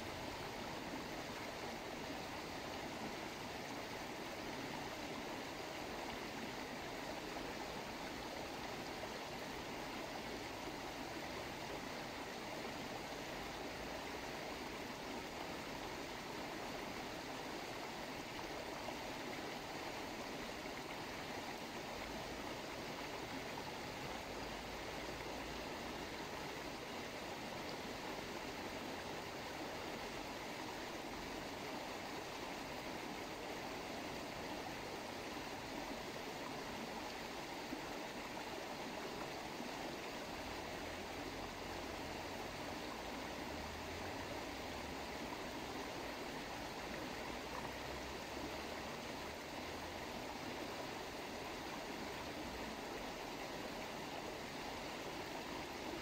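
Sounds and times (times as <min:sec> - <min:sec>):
stream of running water: 0:00.0 - 0:56.0.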